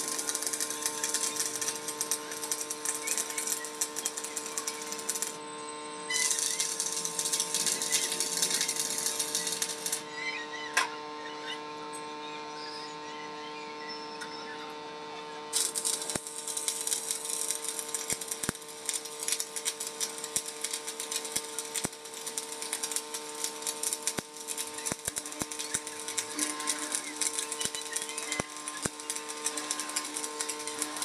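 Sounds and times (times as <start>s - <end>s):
welding arc crackling: 0.0s - 10.1s, 15.4s - 31.0s
electrical hum: 0.0s - 31.0s
spatter clicks: 15.6s - 31.0s.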